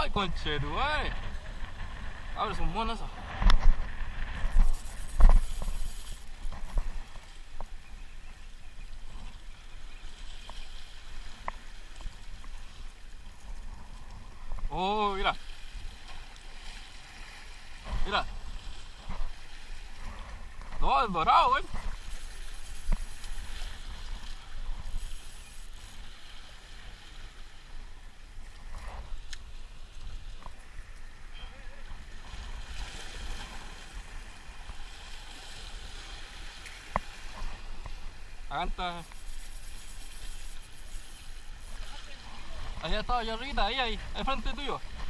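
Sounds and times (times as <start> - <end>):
wind buffeting microphone: 0.0 - 7.8
sea surf against rocks: 0.0 - 45.0.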